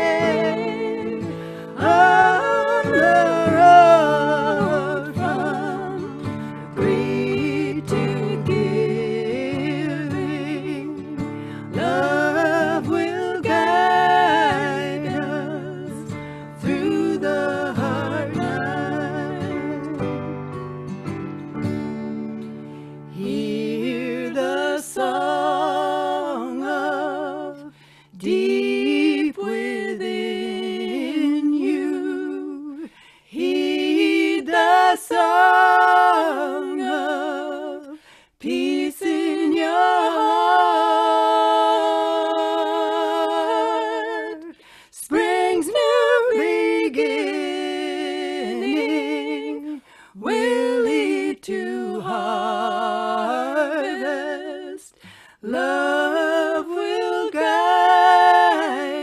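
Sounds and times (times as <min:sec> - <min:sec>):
voices singing in harmony: 0:00.0 - 0:20.5, 0:23.0 - 0:59.0.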